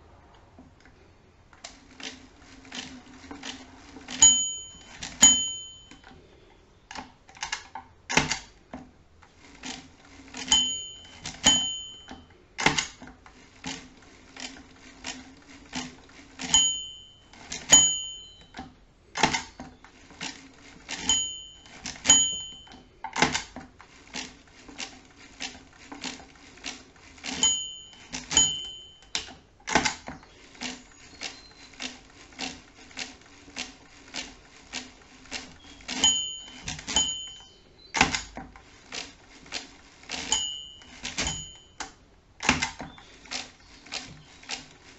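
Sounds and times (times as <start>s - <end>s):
mechanical calculator clicks and clunks: 0.4s - 44.9s
small bell ringing: 4.2s - 6.1s, 10.5s - 12.3s, 16.5s - 18.6s, 21.0s - 22.9s, 27.4s - 29.2s, 36.0s - 37.6s, 40.3s - 41.8s.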